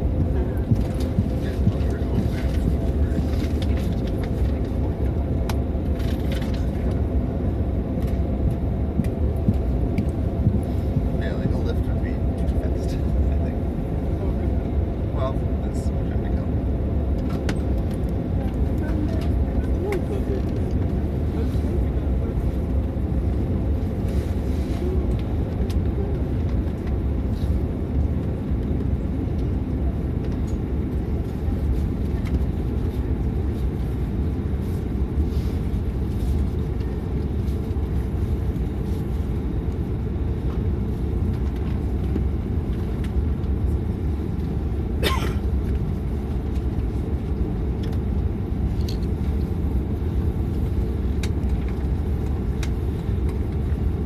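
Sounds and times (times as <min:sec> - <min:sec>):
low drone in aircraft cabin: 0:00.0 - 0:54.0.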